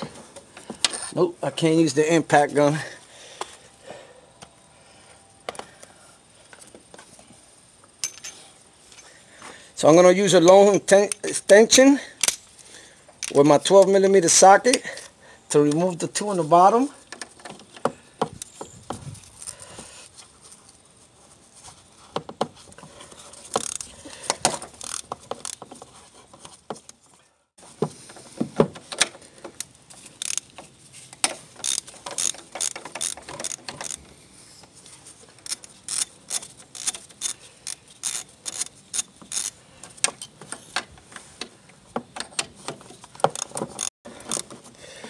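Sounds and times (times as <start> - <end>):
hand ratchet clicking: 23.5 - 25.6, 29.6 - 30.6, 31.2 - 34.1, 35.4 - 40.3, 43.2 - 44.6.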